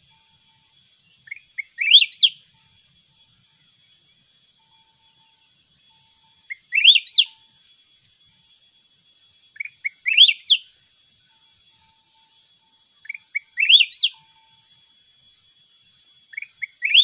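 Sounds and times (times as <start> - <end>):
bird singing upward-sweeping notes: 0.0 - 2.5, 3.6 - 7.5, 9.4 - 10.7, 11.6 - 14.6, 16.1 - 17.0.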